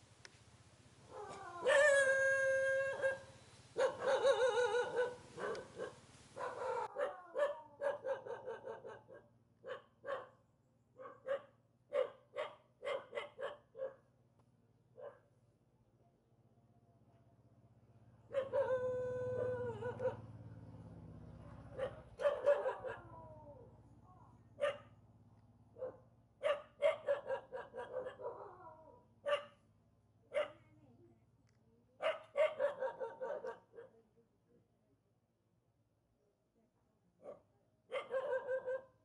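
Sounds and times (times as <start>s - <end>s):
dog barking: 2.9s - 10.4s, 11.0s - 14.1s, 15.0s - 15.4s, 18.3s - 20.3s, 21.4s - 23.2s, 24.6s - 25.0s, 25.8s - 29.6s, 30.3s - 30.7s, 32.0s - 34.0s, 37.2s - 39.0s.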